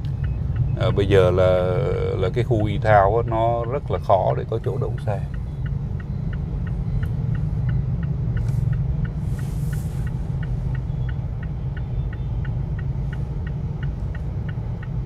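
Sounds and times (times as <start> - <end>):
turn signal ticking: 0.0 - 15.0
vehicle rumbling on the move: 0.0 - 15.0
brief hiss: 8.4 - 10.3.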